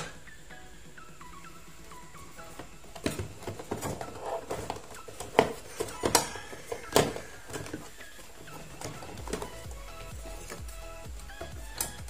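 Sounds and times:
tools knocking on plastic trays: 2.5 - 12.0.

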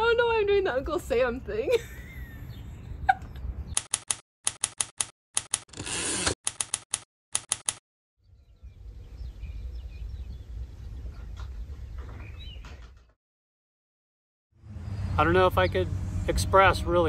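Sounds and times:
typewriter key clacks: 6.5 - 7.8.

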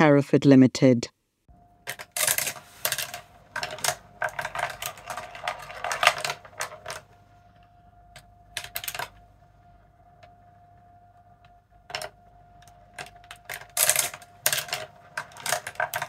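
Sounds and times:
marbles clattering on wooden tracks: 1.9 - 7.1, 11.9 - 16.0.

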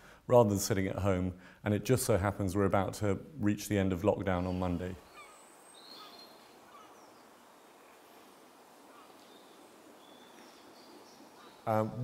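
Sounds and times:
faint outdoor ambience: 0.0 - 12.0
faint bird chirps: 4.3 - 12.0.

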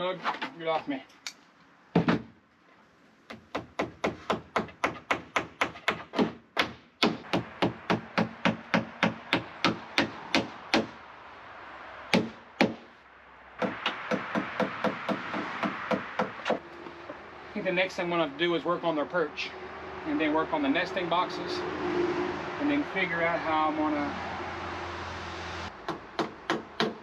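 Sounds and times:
hammer driving nails into wood: 3.3 - 10.9, 25.9 - 27.0.

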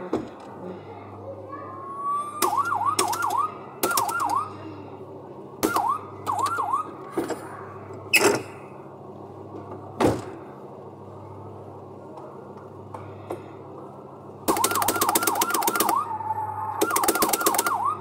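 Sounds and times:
electronic siren yelps: 1.9 - 4.6, 5.6 - 7.0, 14.5 - 18.0.

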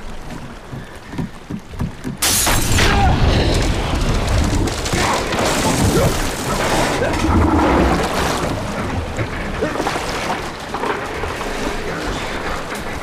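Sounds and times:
crashing churning water: 0.0 - 13.0
loud crash: 2.2 - 7.4.

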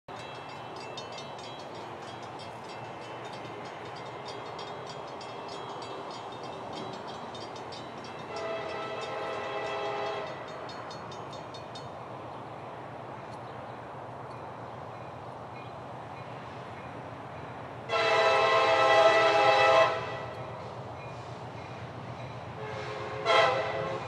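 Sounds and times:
locomotive air horn blast: 8.3 - 10.4, 17.9 - 20.4, 22.6 - 24.0.

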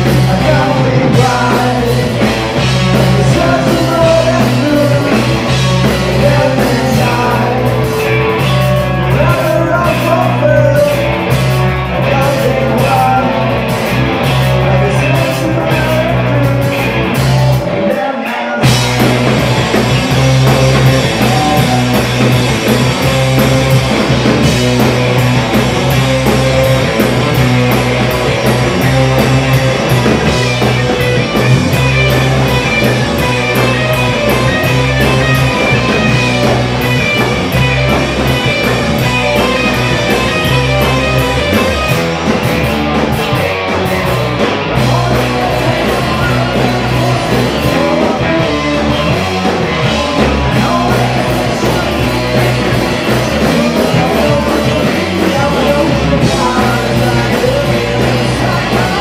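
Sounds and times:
person singing: 0.0 - 19.0, 20.1 - 22.4, 44.7 - 59.0
bass guitar: 0.0 - 59.0
distorted electric guitars: 0.0 - 59.0
drum kit: 0.0 - 59.0.

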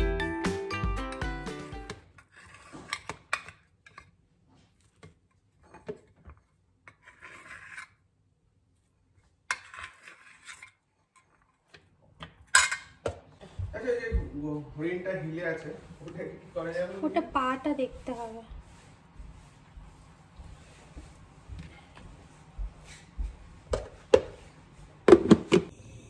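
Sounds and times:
spoon scraping metal plate: 2.1 - 4.1, 6.8 - 8.0, 9.5 - 11.3.

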